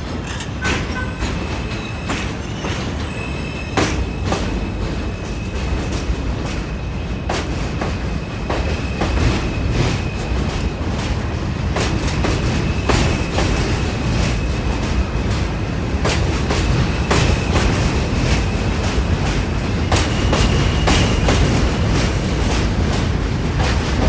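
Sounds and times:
high-pitched train whine: 0:00.0 - 0:11.0
subway train rumble: 0:00.0 - 0:24.0.

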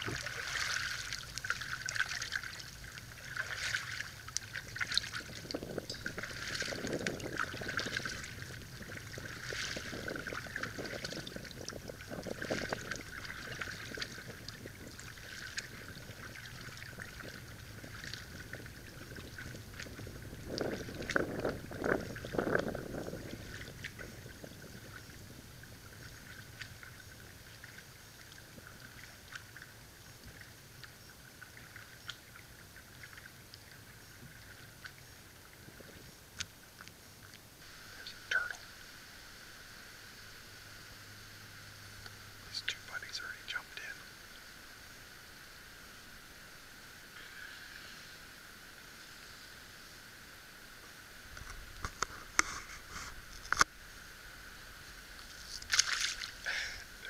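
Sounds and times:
canoe paddle strokes: 0:00.0 - 0:38.6, 0:50.7 - 0:53.9, 0:54.7 - 0:57.0
water lapping and splashing: 0:00.0 - 0:38.9, 0:54.4 - 0:57.0.

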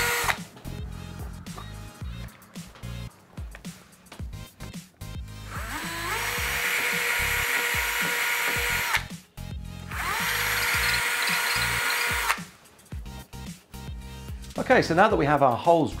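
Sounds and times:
cordless drill boring into masonry: 0:00.0 - 0:00.4, 0:05.5 - 0:09.1, 0:09.9 - 0:12.4.

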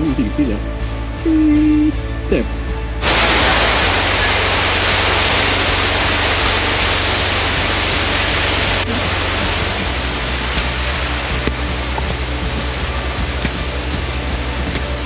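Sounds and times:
waterfall rushing: 0:03.0 - 0:15.0.

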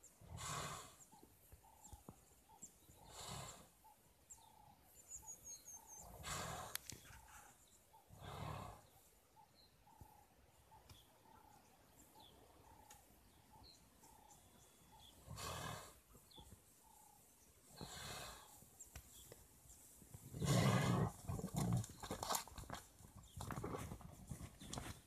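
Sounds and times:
faint bird calls: 0:00.0 - 0:19.4.

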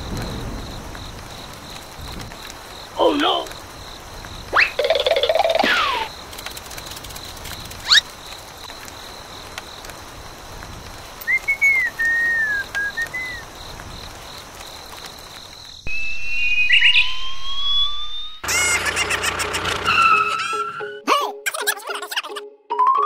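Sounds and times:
whistle-like chirps: 0:04.5 - 0:06.1, 0:11.2 - 0:13.4, 0:15.9 - 0:18.4
slow rising whistle: 0:11.3 - 0:13.4, 0:15.9 - 0:18.4.

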